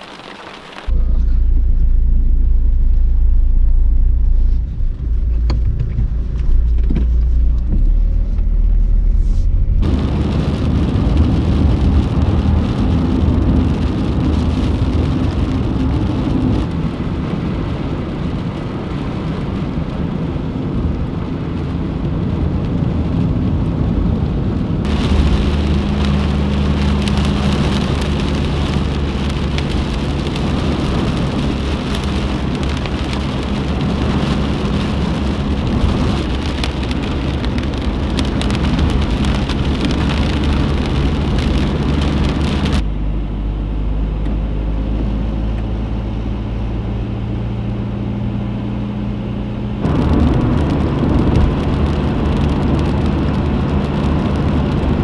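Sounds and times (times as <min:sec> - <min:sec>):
steady rain hiss: 0:00.0 - 0:01.0, 0:24.9 - 0:42.8
low hum: 0:00.8 - 0:15.6
deep rumble: 0:00.8 - 0:55.0.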